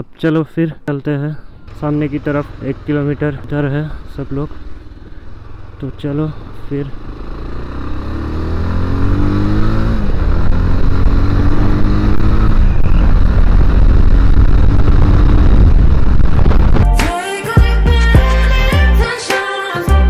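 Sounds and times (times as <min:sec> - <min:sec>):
motorcycle accelerating: 0:01.6 - 0:16.9
wind rushing over microphone: 0:08.7 - 0:16.9.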